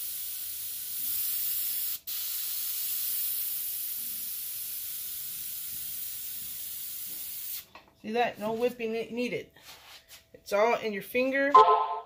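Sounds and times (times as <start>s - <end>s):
airbrush spraying hiss: 0.0s - 7.7s.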